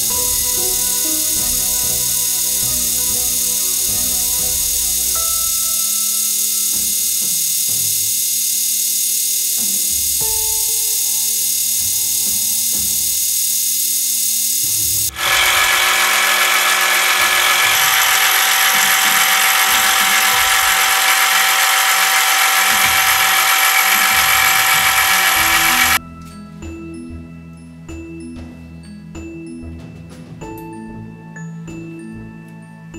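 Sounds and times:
soft background music: 0.0 - 7.1, 26.0 - 32.9
milling machine cutting whine: 0.0 - 10.0, 10.7 - 26.0.

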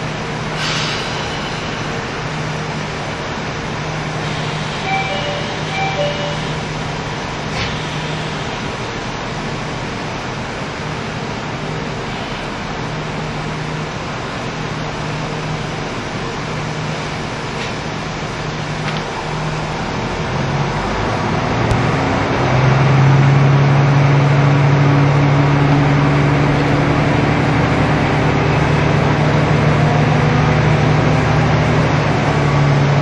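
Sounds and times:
diesel engine idling: 0.0 - 33.0
two-note chime: 4.9 - 6.6.

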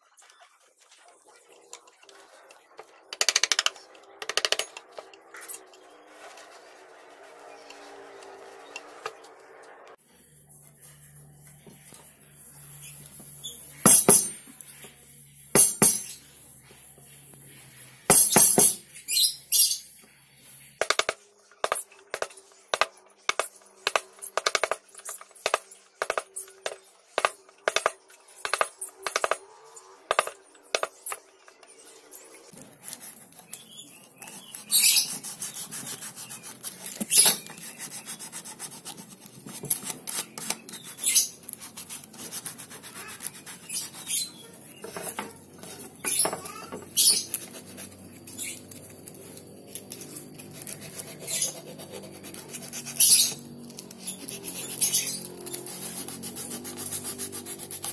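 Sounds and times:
blade scraping wood: 32.6 - 57.9.

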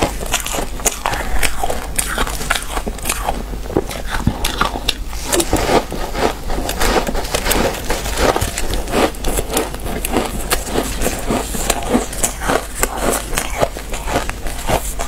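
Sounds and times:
shaved ice crunching and squeaking: 6.8 - 15.0.

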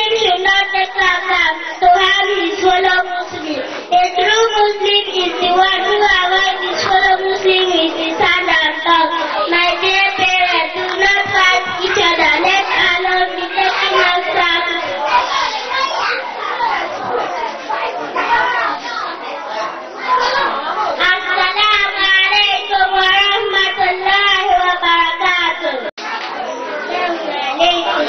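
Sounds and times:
girl singing into microphone: 0.0 - 15.0.

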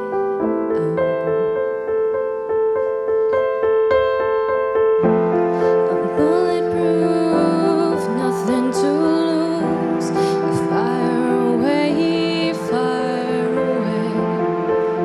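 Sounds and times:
electronic keyboard piano ballad: 0.0 - 15.0
person singing: 0.5 - 2.0, 5.4 - 15.0.

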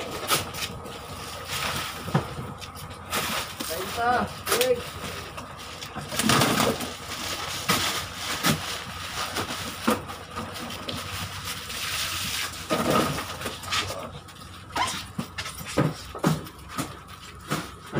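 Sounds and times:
plastic bag rustling and crinkling: 0.0 - 15.6.

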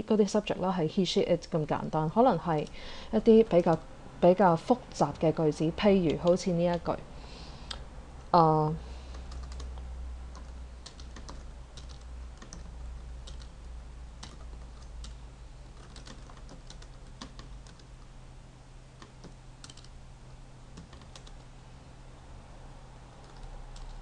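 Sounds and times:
low steady hum: 0.0 - 24.0
keyboard typing clicks: 9.1 - 13.6, 14.2 - 17.9, 19.0 - 19.9, 20.7 - 21.5, 23.2 - 24.0.

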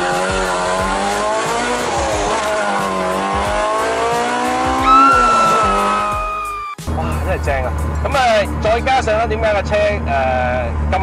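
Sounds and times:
car engine revving at full throttle: 0.0 - 6.3.

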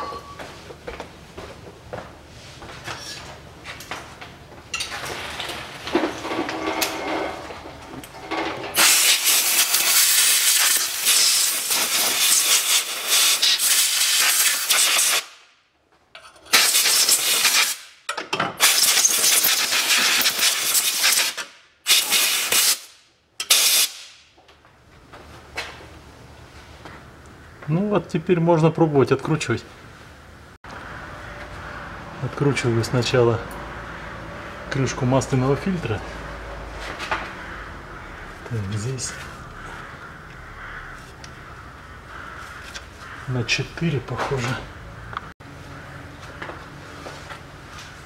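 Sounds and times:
pressurised spray hissing: 8.8 - 15.2.

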